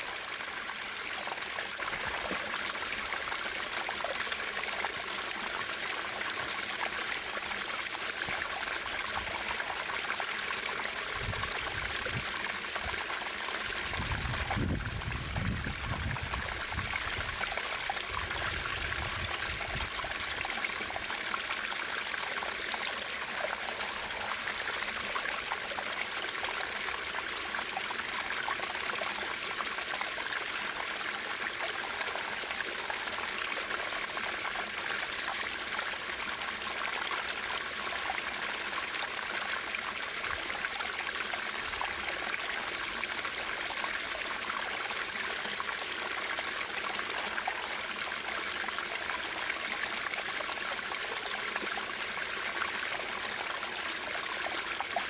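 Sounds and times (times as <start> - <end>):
stream rushing over rocks: 0.0 - 55.0.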